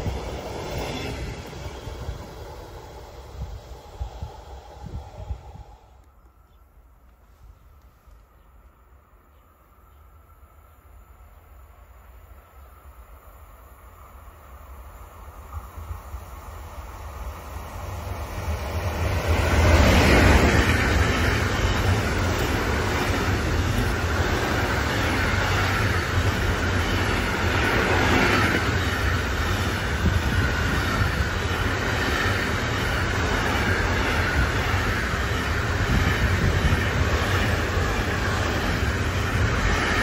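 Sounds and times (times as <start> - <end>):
freight train passing: 0.0 - 40.0.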